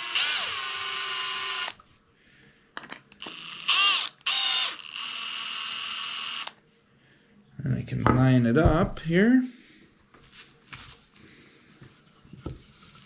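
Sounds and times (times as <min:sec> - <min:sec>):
cordless drill driving screw: 0:00.0 - 0:01.8, 0:03.2 - 0:06.6
drill trigger bursts: 0:00.0 - 0:01.8, 0:03.2 - 0:06.6.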